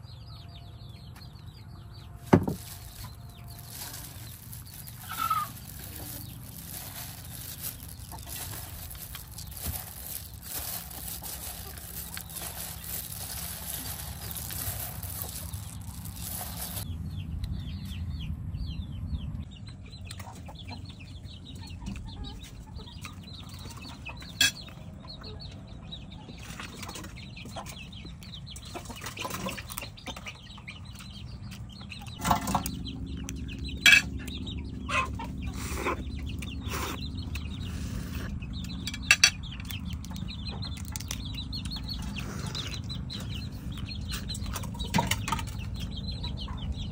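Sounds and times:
chickens clucking and cheeping: 0.0 - 46.9
salad rustling in a bowl: 2.3 - 16.9
utensils clinking on a plate: 33.8 - 34.2.

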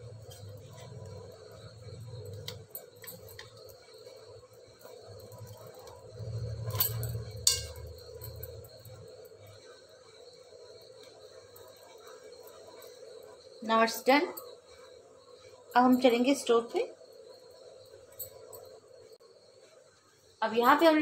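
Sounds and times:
bangles clinking: 0.1 - 9.6, 15.7 - 16.3, 17.1 - 18.8.

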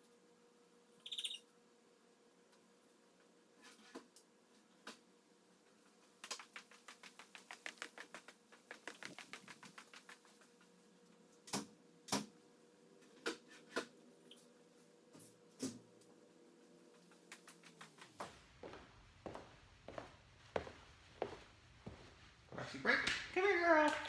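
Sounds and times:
heavy footsteps on hard floor: 18.2 - 22.7.

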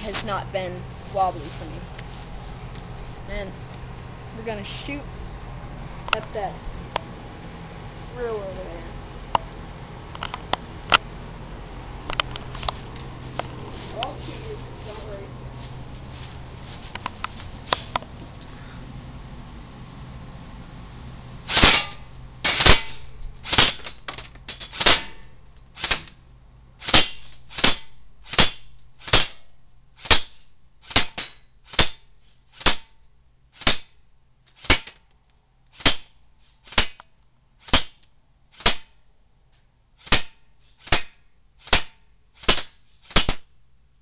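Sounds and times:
airsoft gun single shots: 21.5 - 23.9, 24.8 - 25.2, 26.8 - 29.4, 30.0 - 32.0, 38.6 - 38.9, 40.0 - 43.4.

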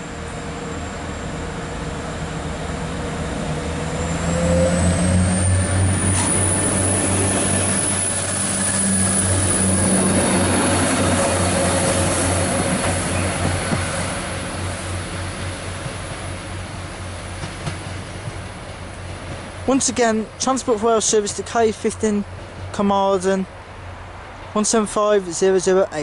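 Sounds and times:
diesel train engines humming: 0.0 - 26.0
high whine rising in pitch: 3.6 - 13.4.

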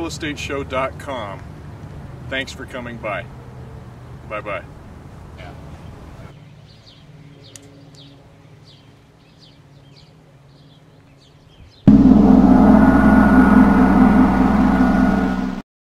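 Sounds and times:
gong-like ringing chord: 11.9 - 15.6.

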